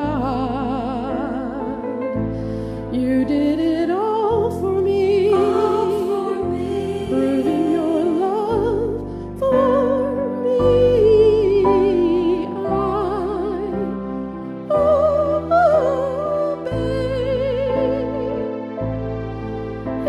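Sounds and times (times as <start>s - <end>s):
woman singing with vibrato: 2.9s - 13.9s, 14.7s - 18.5s.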